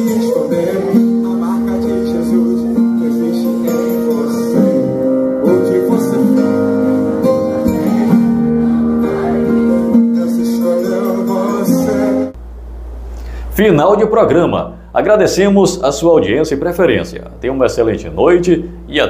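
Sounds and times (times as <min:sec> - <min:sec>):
guitar chords instrumental music: 0:00.0 - 0:12.4.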